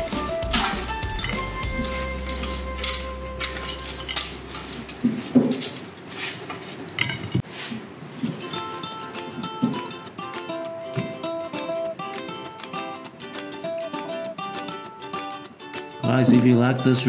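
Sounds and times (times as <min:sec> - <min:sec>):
metal tongs clinking: 0:00.0 - 0:06.1, 0:06.9 - 0:07.4.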